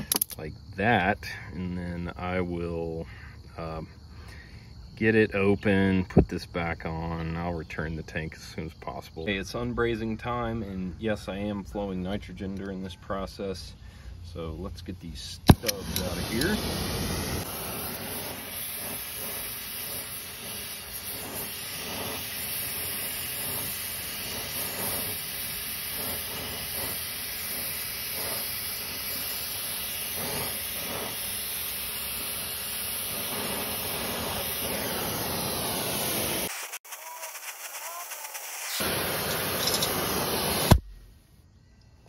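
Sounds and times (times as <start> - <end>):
torch flame hissing: 15.4 - 40.9.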